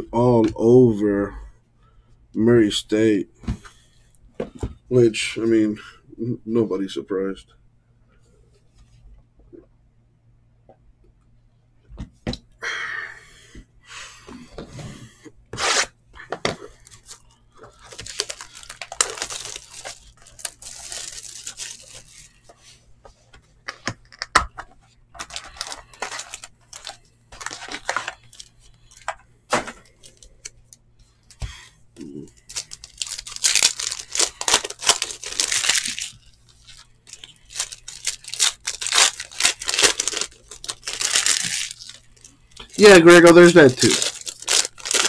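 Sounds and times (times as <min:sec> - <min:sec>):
foil wrappers crinkling and tearing: 0:16.7 - 0:22.4, 0:25.2 - 0:29.2, 0:29.8 - 0:30.6, 0:32.1 - 0:45.0.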